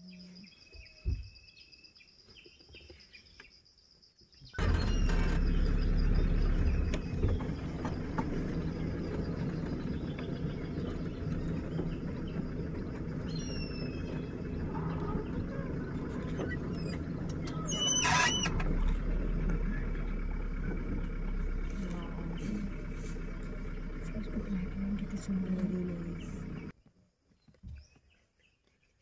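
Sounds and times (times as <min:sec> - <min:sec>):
birds chirping and whistling: 0:04.6 - 0:19.6
vehicle engine driving on dirt track: 0:04.6 - 0:26.8.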